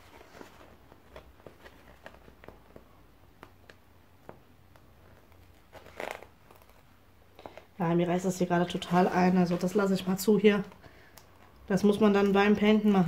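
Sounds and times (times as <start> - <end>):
plastic film peeling crackles: 5.1 - 7.7.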